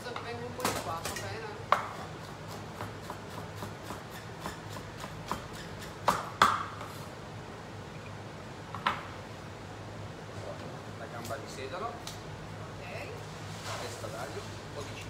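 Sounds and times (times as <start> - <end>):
steady low hum: 0.0 - 15.0
knife chopping on wooden board: 0.6 - 7.0.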